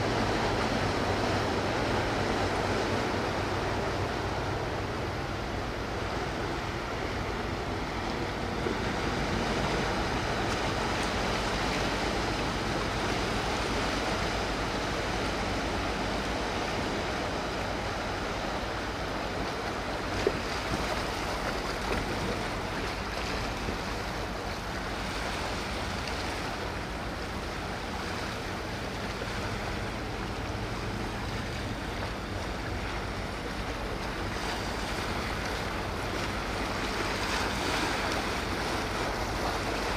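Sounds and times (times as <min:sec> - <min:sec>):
ferry engines humming: 0:00.0 - 0:39.9
water wash: 0:00.0 - 0:39.9
wind: 0:00.0 - 0:39.9.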